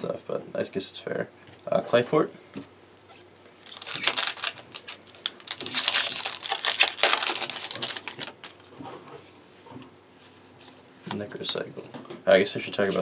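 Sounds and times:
cards being handled: 3.6 - 8.7
foil pack crinkling and tearing: 3.6 - 8.7.

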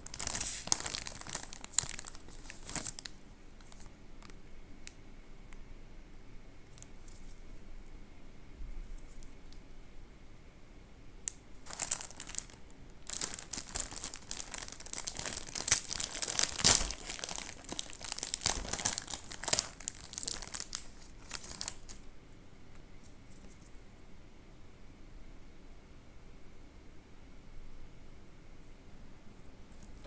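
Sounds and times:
plastic wrapper crinkling: 0.0 - 4.4, 11.3 - 22.0.

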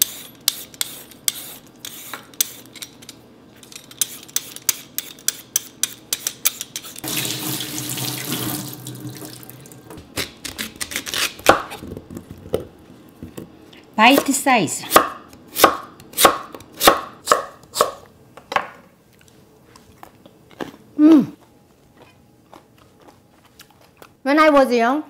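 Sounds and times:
vegetable peeler scraping potato: 0.0 - 2.8, 10.1 - 11.8.

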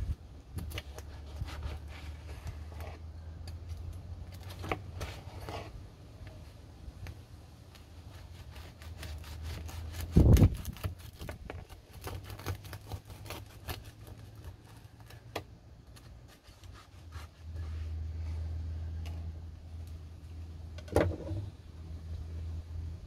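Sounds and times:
knife sawing through bread crust: 8.0 - 11.2, 11.9 - 14.8.

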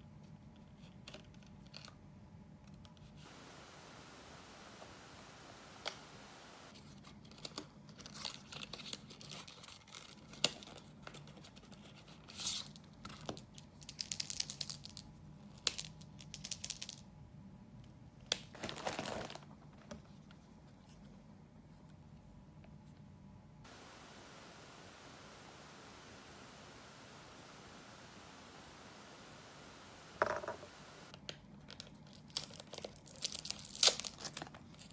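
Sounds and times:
packaging crinkling and tearing: 18.3 - 19.4, 31.7 - 34.9.

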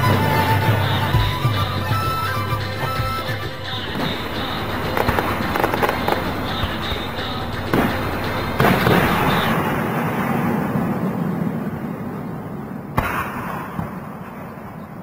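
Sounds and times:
rolling rumble: 0.0 - 13.0
fireworks bangs: 3.7 - 15.0.

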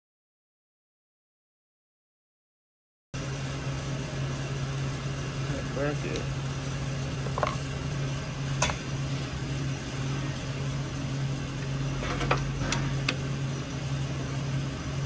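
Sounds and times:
low hum: 3.2 - 15.0.

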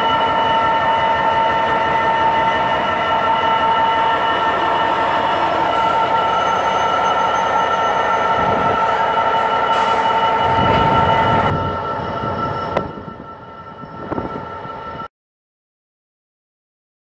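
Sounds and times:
diesel locomotive rumble: 0.0 - 15.1.

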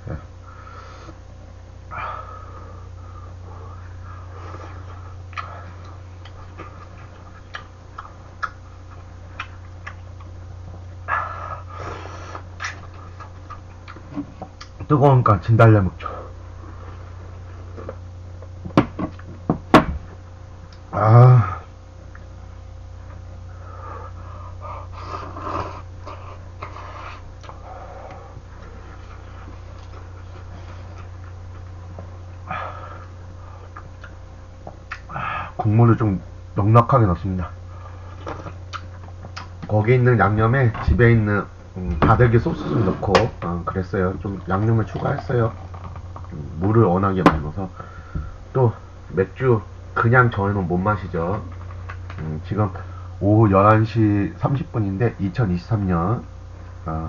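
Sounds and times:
steady low hum: 0.0 - 57.0
chewing smacks and clicks: 7.4 - 10.3, 34.9 - 35.1
person huffing breaths: 32.4 - 33.7, 35.1 - 35.6.

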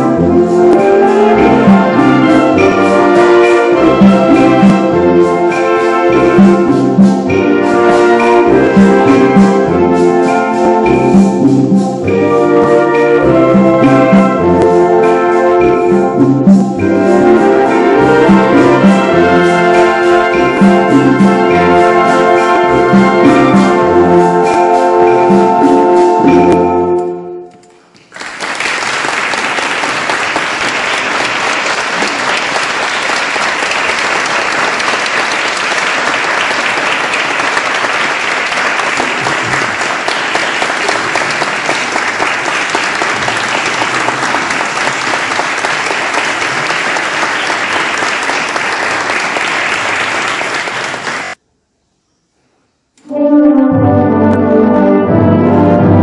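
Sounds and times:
instrumental concert piece: 0.0 - 51.4, 53.0 - 56.0
audience applauding: 27.9 - 51.4.

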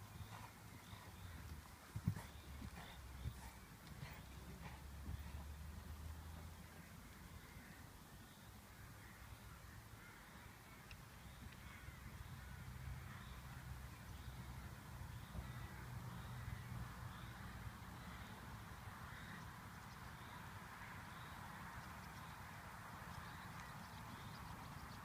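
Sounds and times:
crows cawing: 7.3 - 7.8, 8.8 - 10.8, 11.6 - 12.1.

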